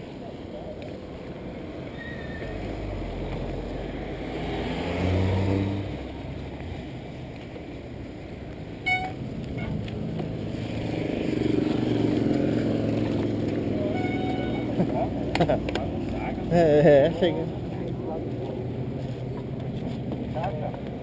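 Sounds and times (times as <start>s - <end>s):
street noise: 0.0s - 21.0s
sharp squeak: 1.9s - 2.6s, 8.9s - 9.8s, 13.8s - 14.8s
car engine passing: 2.4s - 7.2s, 9.2s - 20.2s.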